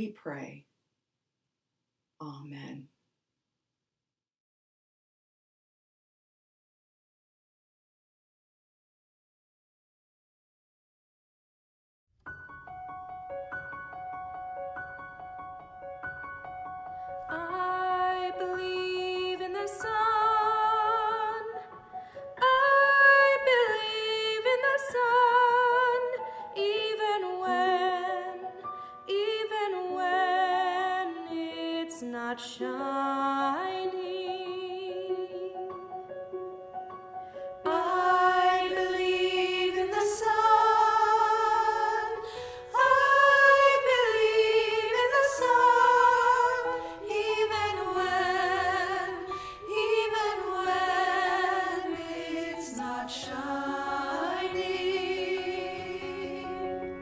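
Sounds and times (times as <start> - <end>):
choir singing: 17.3 - 21.7, 37.6 - 57.0.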